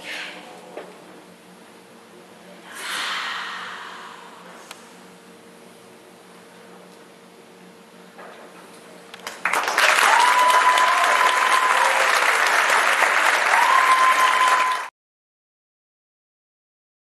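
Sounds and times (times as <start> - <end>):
audience applauding: 9.2 - 14.9
high whistle: 13.6 - 14.9.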